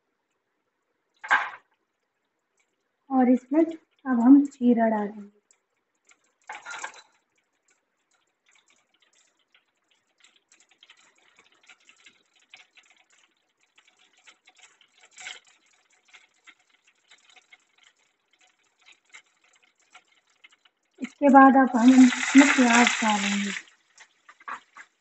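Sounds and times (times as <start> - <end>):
seeds crackling and popping in oil: 1.1 - 4.6, 5.2 - 25.0.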